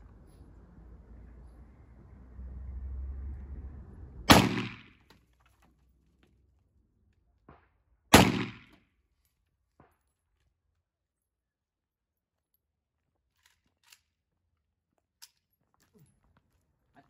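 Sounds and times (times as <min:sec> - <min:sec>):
pistol gunshots with echo: 0:04.3 - 0:05.0, 0:08.1 - 0:08.8.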